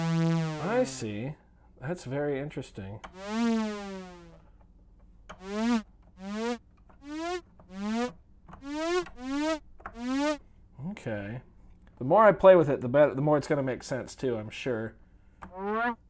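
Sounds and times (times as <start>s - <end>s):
synthesizer notes bending in pitch: 0.0s - 0.9s, 3.2s - 4.4s, 5.4s - 10.4s.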